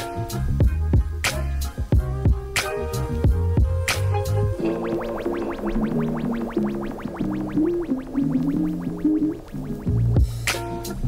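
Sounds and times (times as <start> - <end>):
melody of held notes: 2.4 - 10.9
fast even ticking: 4.6 - 10.6.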